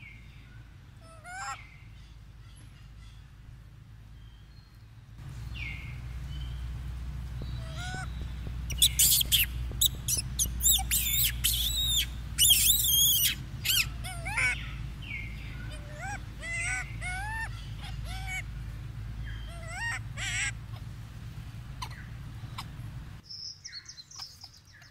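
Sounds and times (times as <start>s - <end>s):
low rumble: 0.0s - 23.2s
monkeys squealing: 1.0s - 1.6s, 7.6s - 8.1s, 8.7s - 18.6s, 19.4s - 20.9s, 21.8s - 22.8s.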